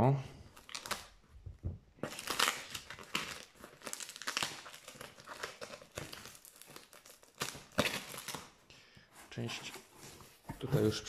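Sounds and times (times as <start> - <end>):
packing tape ripping off cardboard: 0.6 - 1.2, 2.0 - 8.6.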